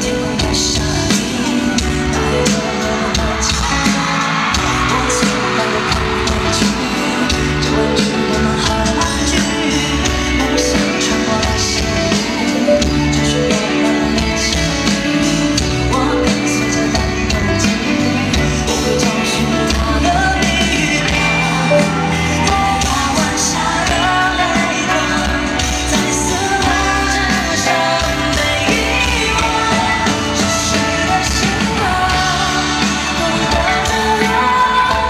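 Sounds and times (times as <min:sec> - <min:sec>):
man singing into microphone: 0:00.0 - 0:35.0
pop-rock band playing: 0:00.0 - 0:35.0.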